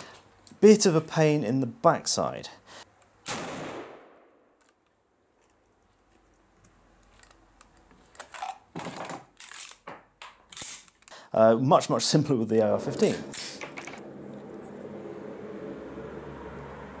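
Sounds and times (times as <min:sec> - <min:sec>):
rifle shot: 0:03.2 - 0:04.4.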